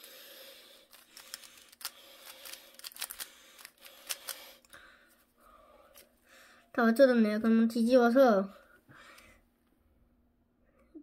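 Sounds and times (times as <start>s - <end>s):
puzzle cube clicking: 0.9s - 4.5s.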